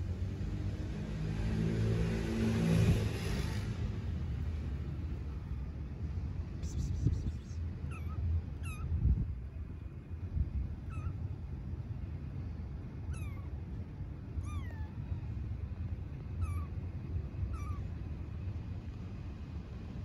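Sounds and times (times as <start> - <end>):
kitten meowing: 7.0 - 9.0, 10.8 - 11.2, 13.1 - 13.6, 14.4 - 15.0, 16.4 - 16.8, 17.4 - 17.9.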